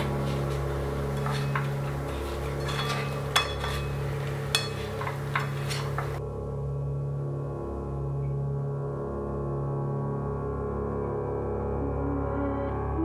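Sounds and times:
utensils clacking against frying pan: 0:00.0 - 0:06.2.

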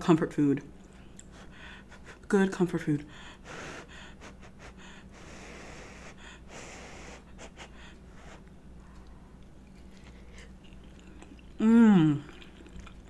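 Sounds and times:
person blowing short puffs: 0:03.5 - 0:08.5.

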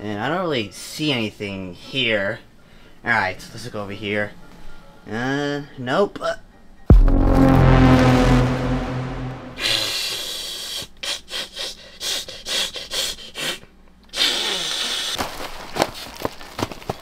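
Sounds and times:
low falling tone: 0:06.9 - 0:09.8.

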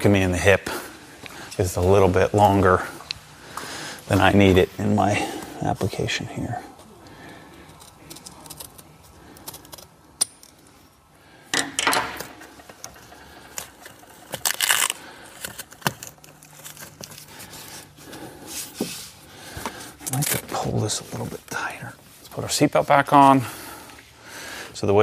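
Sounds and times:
strap rattling and scraping: 0:11.5 - 0:17.9.

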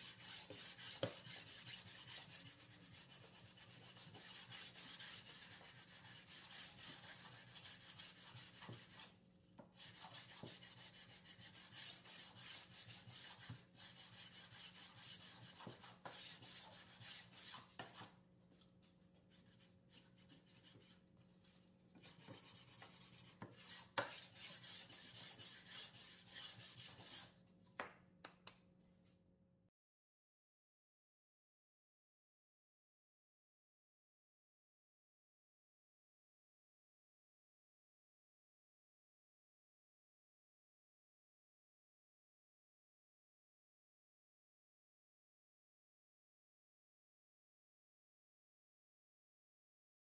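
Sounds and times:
sandpaper sanding wood: 0:00.0 - 0:09.0, 0:22.1 - 0:27.3.

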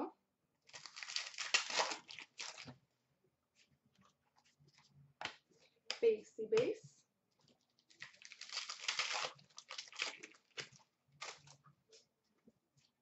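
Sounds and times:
wrapper crinkling as torn: 0:00.7 - 0:02.7, 0:07.8 - 0:11.6.

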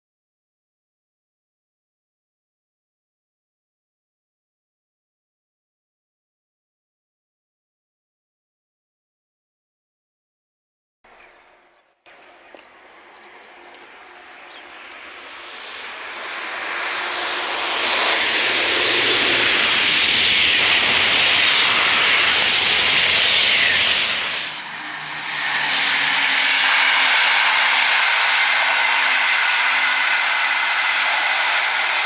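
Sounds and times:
high-speed train passing: 0:11.1 - 0:32.0.

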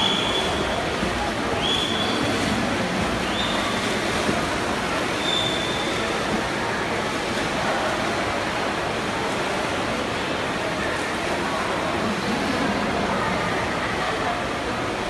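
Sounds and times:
swimmers splashing: 0:00.0 - 0:08.3.

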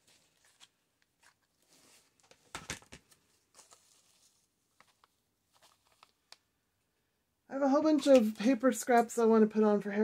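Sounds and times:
fabric and paper rustling: 0:00.0 - 0:06.4.

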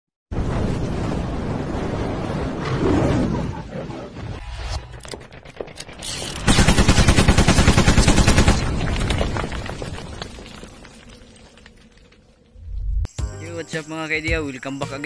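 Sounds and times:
machine-gun fire: 0:06.4 - 0:09.0.

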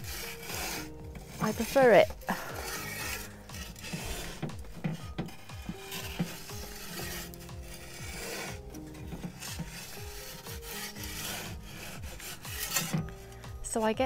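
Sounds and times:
metal peel scraping on stone: 0:00.0 - 0:13.7.

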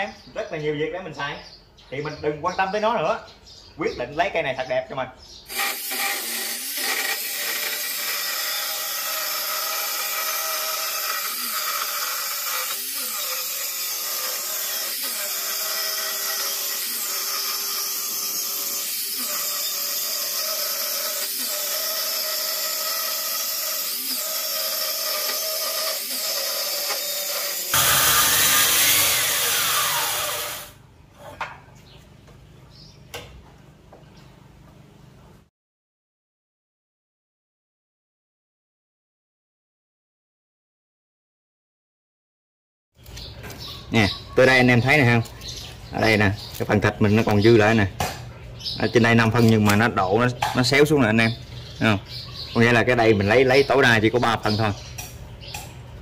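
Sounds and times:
circular saw cutting board: 0:05.5 - 0:30.8.

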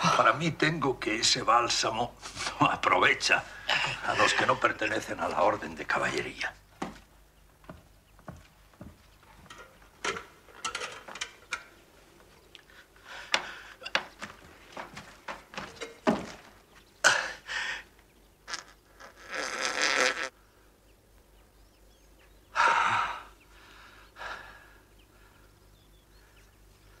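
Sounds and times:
thumps and knocks: 0:13.3 - 0:16.6
man groaning and gasping: 0:22.6 - 0:23.4.

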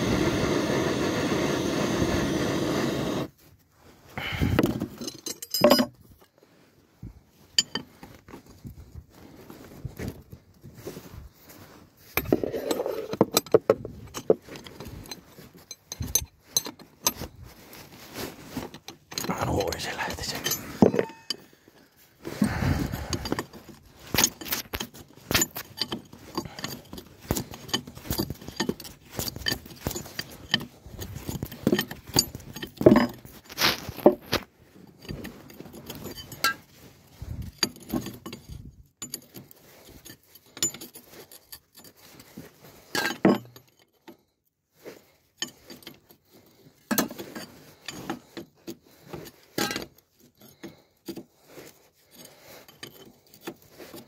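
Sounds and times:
metal tools clinking and clanking: 0:04.4 - 0:06.4, 0:07.4 - 0:08.7, 0:12.0 - 0:17.4, 0:18.6 - 0:34.2, 0:34.8 - 0:44.3, 0:45.3 - 0:54.0.

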